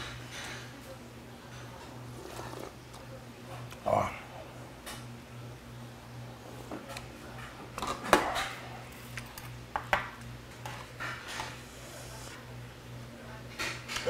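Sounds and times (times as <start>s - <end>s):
steady low hum: 8.4s - 13.6s.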